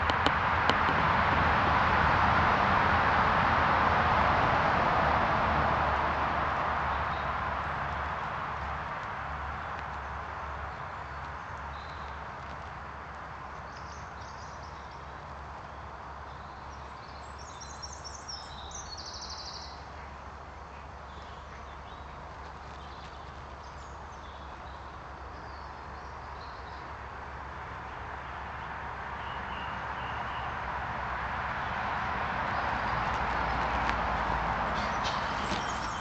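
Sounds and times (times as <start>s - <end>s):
small birds chirping: 9.4s - 30.6s, 31.6s - 36.0s.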